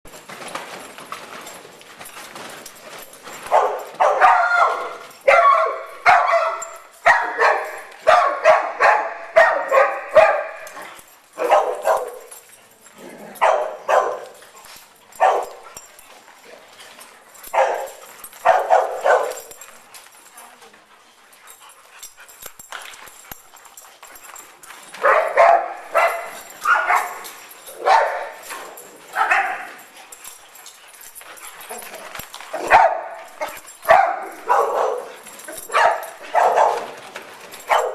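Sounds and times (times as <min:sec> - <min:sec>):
dog barking: 0:03.5 - 0:10.6, 0:11.4 - 0:12.3, 0:13.4 - 0:14.3, 0:15.2 - 0:15.6, 0:17.5 - 0:19.5, 0:25.0 - 0:27.2, 0:27.8 - 0:28.4, 0:29.2 - 0:29.8, 0:32.5 - 0:37.0, 0:37.6 - 0:37.9.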